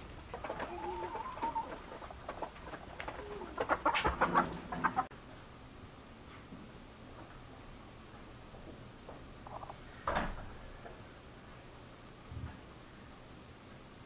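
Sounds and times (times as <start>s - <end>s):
chickens clucking: 0.0s - 5.1s
faint room hum: 0.0s - 14.0s.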